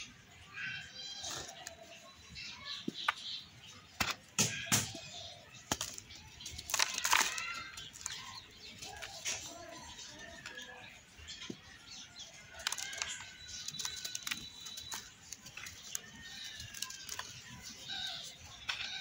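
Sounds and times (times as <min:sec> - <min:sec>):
hands crushing dry soil: 0:01.2 - 0:19.0
sharp cracks: 0:05.7 - 0:09.5.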